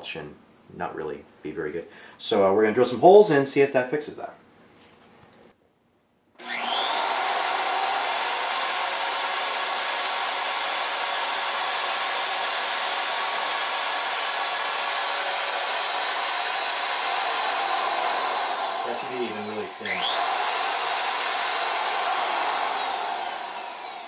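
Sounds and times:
electric drill spinning: 6.4s - 24.0s.

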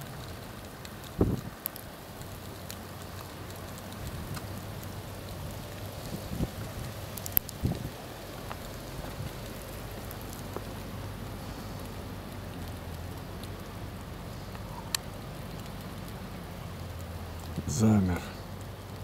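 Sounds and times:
wind rumble on microphone: 0.0s - 16.2s
wind and falling snow hiss: 0.0s - 19.0s
sharp clicks: 14.9s - 15.8s.

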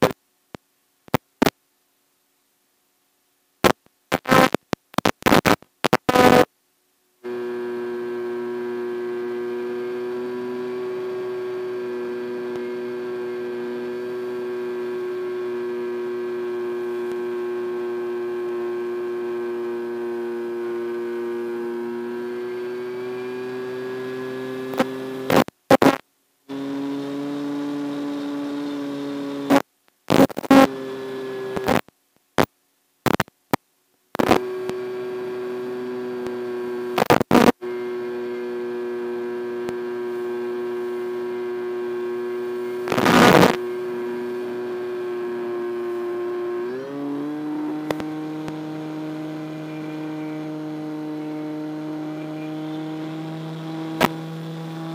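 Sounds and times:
static crackles: 0.0s - 1.7s, 3.6s - 6.6s, 24.5s - 26.2s, 27.3s - 34.9s, 36.2s - 37.6s, 38.4s - 46.1s, 47.8s - 48.7s, 54.0s - 54.9s
steady buzzing hum: 0.0s - 54.9s.

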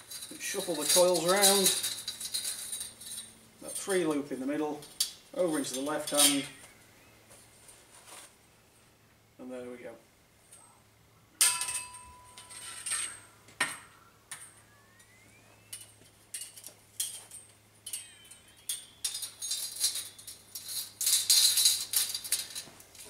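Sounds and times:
metallic jangle: 0.0s - 3.9s, 16.3s - 23.0s
scraping sliding metal tones: 0.0s - 6.6s, 11.5s - 22.7s
steel blade clanking: 4.9s - 6.6s, 11.4s - 13.4s
metallic ringing tone: 11.4s - 21.8s.

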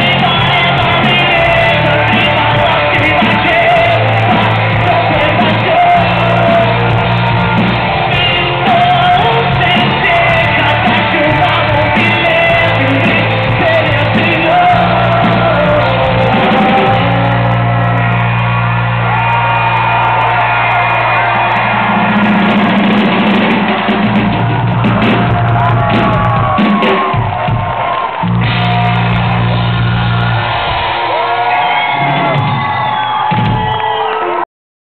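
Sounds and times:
man singing and shouting: 0.0s - 7.1s, 8.1s - 17.8s
live rock band playing: 0.0s - 34.4s.

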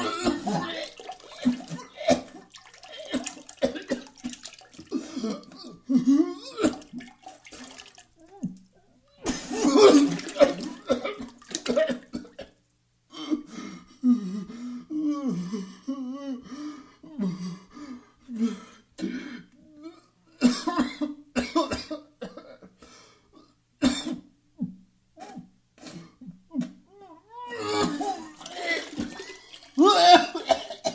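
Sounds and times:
person retching and gagging: 0.0s - 8.6s, 9.2s - 12.4s, 27.5s - 30.9s.

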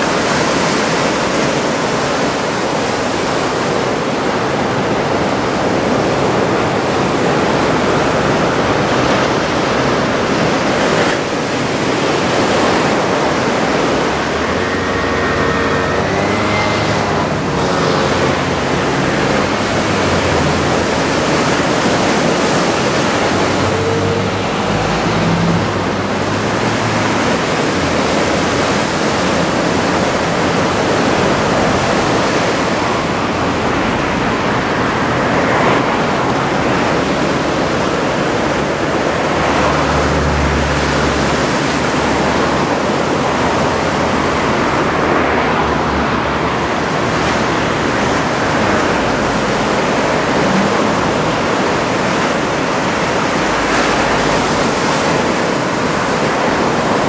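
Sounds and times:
surf rushing: 0.0s - 57.0s.

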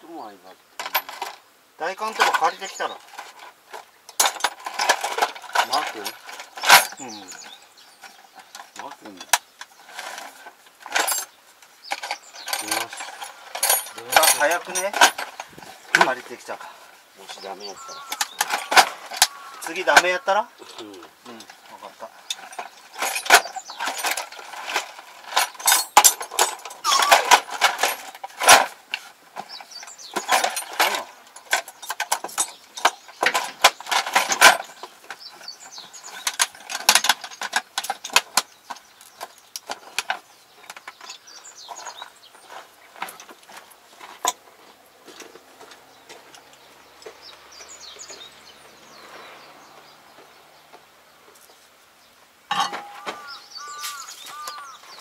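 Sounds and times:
metal tools clinking in toolbox: 0.8s - 1.4s, 4.1s - 16.5s, 17.2s - 20.2s, 21.4s - 44.4s, 52.5s - 55.0s.

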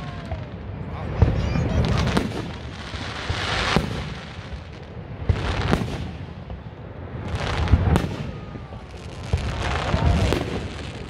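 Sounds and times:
fireworks booming: 0.0s - 11.0s.

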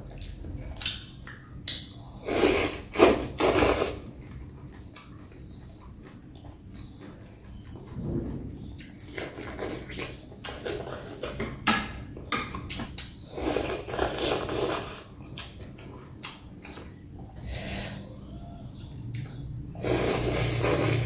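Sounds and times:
wet chewing and mouth smacks: 0.0s - 2.2s, 14.7s - 17.1s
slurping from a bowl: 2.2s - 4.1s, 13.3s - 15.1s, 19.8s - 21.0s.

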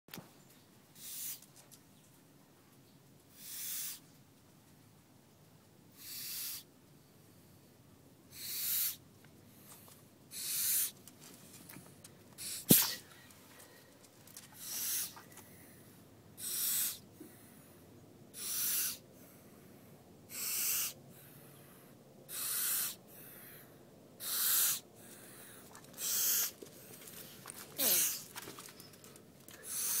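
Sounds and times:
snake hissing: 1.0s - 1.4s, 3.3s - 4.1s, 5.9s - 6.7s, 8.3s - 9.0s, 10.3s - 11.0s, 12.4s - 13.1s, 14.6s - 15.3s, 16.4s - 17.0s, 18.3s - 19.1s, 20.3s - 21.0s, 22.3s - 23.3s, 24.2s - 24.9s, 26.0s - 26.6s, 27.8s - 28.3s, 29.6s - 30.0s.

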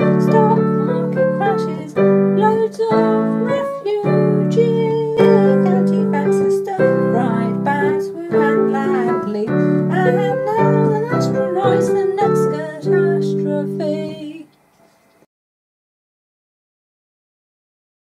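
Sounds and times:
piano chords: 0.0s - 14.4s
person singing: 0.0s - 14.5s.

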